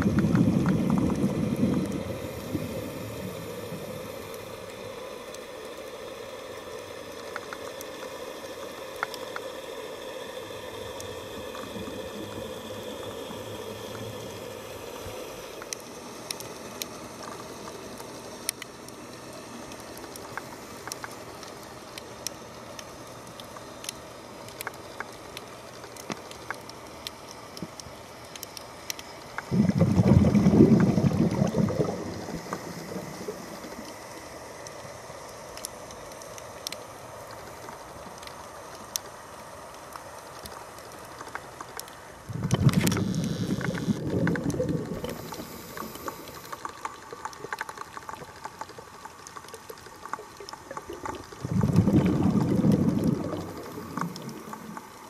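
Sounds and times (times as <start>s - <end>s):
underwater exhale bubbles: 0.0s - 4.4s, 29.4s - 34.0s, 42.2s - 46.6s, 50.7s - 55.0s
faint steady hiss: 0.0s - 55.0s
small clicks: 7.1s - 9.5s, 15.0s - 29.5s, 32.4s - 55.0s.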